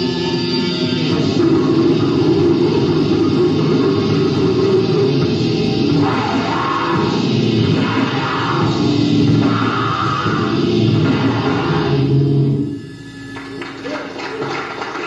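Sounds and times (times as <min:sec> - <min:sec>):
drum kit: 0:00.0 - 0:12.6
distorted electric guitar: 0:00.0 - 0:15.0.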